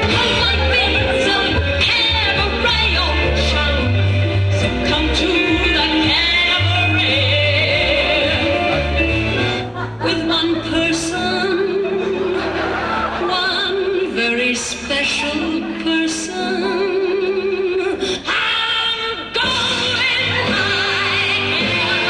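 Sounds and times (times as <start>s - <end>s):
instrumental accompaniment: 0.0s - 13.2s.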